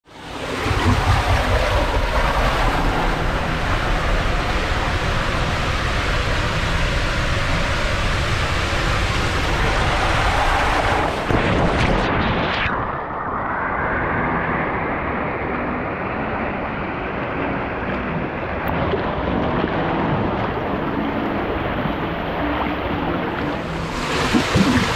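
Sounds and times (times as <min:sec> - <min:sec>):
water rushing through slide tube: 0:00.1 - 0:13.2, 0:17.4 - 0:24.9
splash into pool: 0:23.8 - 0:24.9.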